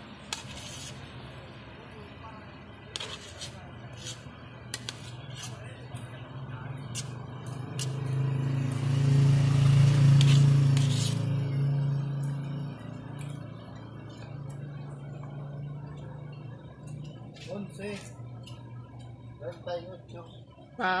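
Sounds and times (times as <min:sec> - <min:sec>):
vehicle engine passing: 0:05.5 - 0:17.7.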